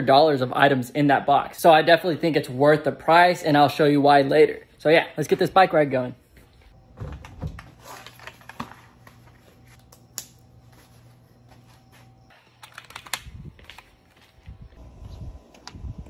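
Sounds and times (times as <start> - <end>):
steady low hum: 8.5 - 16.0.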